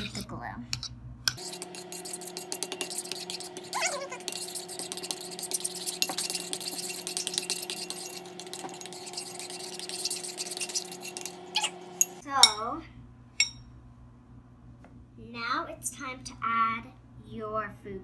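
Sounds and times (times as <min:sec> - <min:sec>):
metal spoon scraping ceramic bowl: 0:00.0 - 0:11.4
steady low hum: 0:00.0 - 0:18.0.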